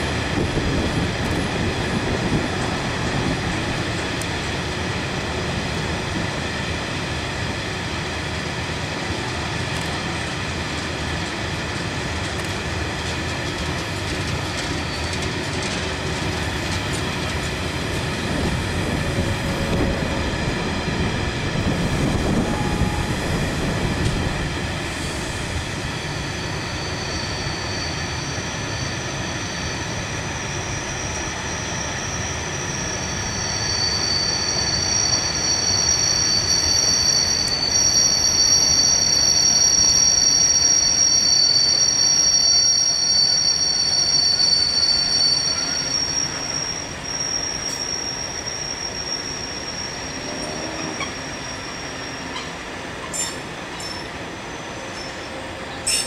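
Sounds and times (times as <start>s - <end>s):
low rumble of wheels on rail: 0.0s - 56.0s
train wheels squealing on curve: 13.3s - 56.0s.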